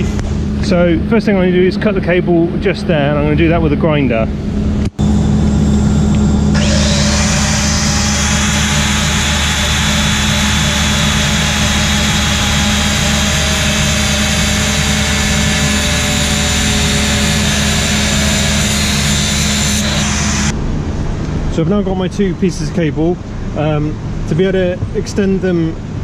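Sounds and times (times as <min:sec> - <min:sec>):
steady low hum: 0:00.0 - 0:24.3
angle grinder cutting cable: 0:06.1 - 0:20.6.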